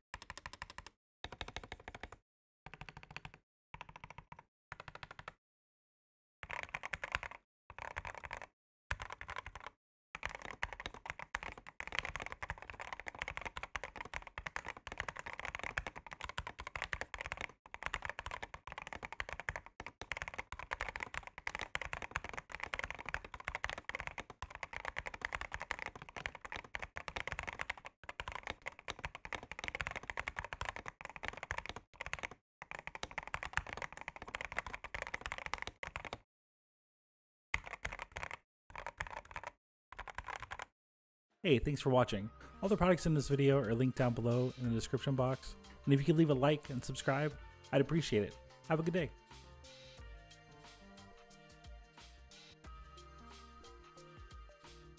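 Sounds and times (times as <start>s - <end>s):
fast typing on mechanical keyboard: 0.2s - 5.4s, 6.4s - 36.2s, 37.6s - 40.7s.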